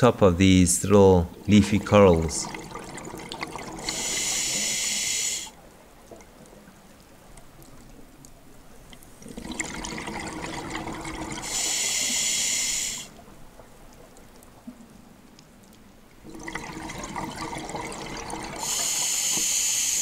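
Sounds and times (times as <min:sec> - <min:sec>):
regulator inhalation hiss: 0:03.8 - 0:05.6, 0:11.4 - 0:13.1, 0:18.6 - 0:20.0.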